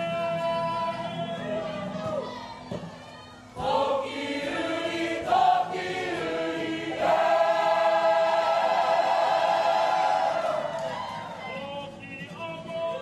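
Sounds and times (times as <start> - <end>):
group singing together: 3.6 - 10.6.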